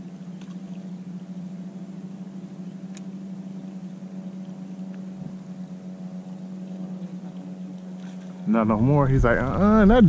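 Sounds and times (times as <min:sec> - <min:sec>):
light click: 0:02.9 - 0:03.1.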